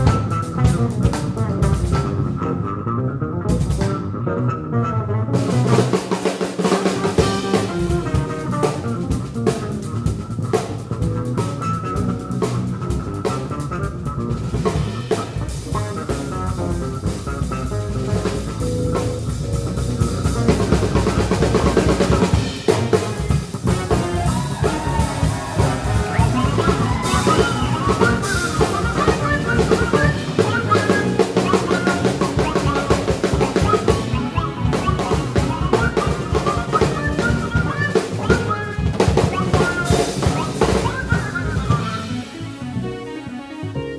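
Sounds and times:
jazz-funk band playing: 0.0 - 43.9.

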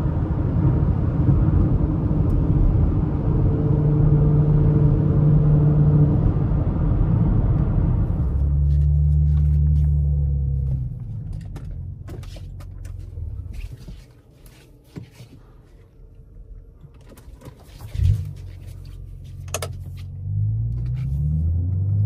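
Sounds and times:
car engine droning: 0.0 - 22.0
road noise: 0.0 - 22.0.

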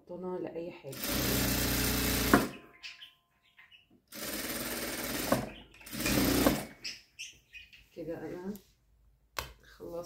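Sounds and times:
sewing machine stitching: 0.9 - 2.5, 4.1 - 6.7.

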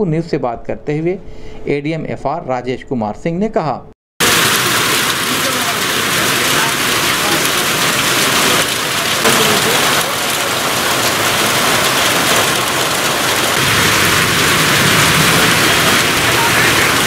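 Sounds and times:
heavy rain on pavement: 4.2 - 17.0.

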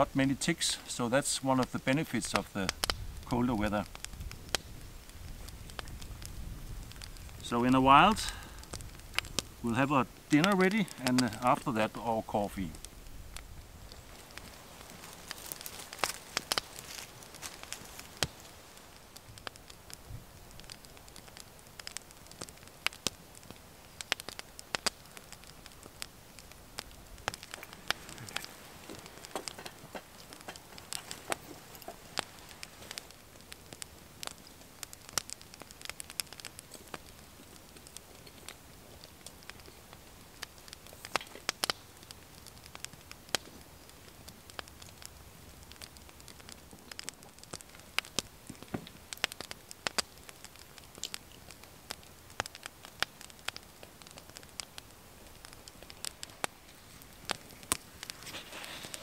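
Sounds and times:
sharp snaps and pops: 0.0 - 59.0
wood fire crackling: 0.0 - 59.0.

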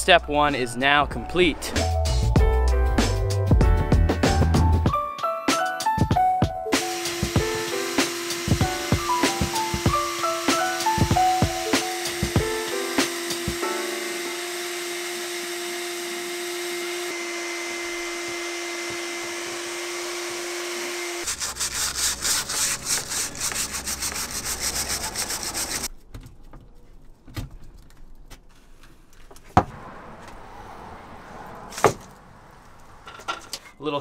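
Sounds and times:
shop vacuum whine and hiss: 6.8 - 21.2
sponge scrubbing on cabinet: 21.2 - 25.9.

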